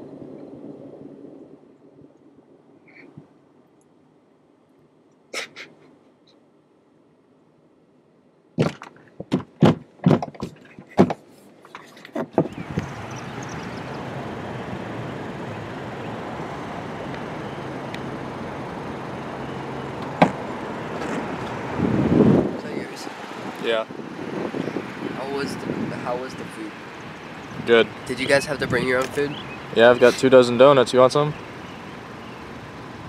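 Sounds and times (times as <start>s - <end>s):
knocks and thumps: 8.6s - 12.9s, 20.0s - 20.4s
car driving heard from inside: 12.5s - 33.0s
car door shutting: 20.0s - 21.6s.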